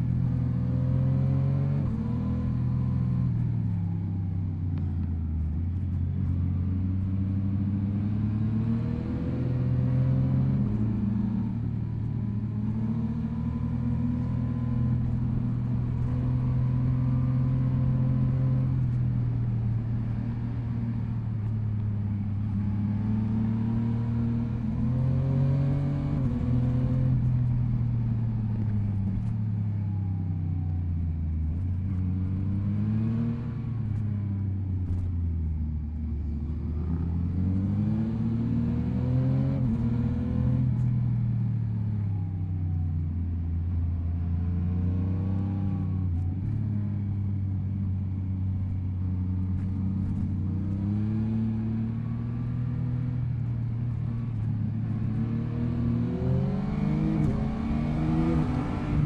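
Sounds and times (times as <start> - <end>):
motorcycle engine revving: 49.4 - 59.0.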